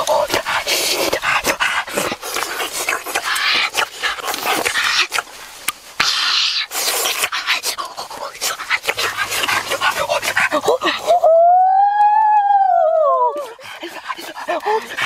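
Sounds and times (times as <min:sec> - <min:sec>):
boy panting and crying out: 0:10.5 - 0:11.9, 0:12.9 - 0:15.0.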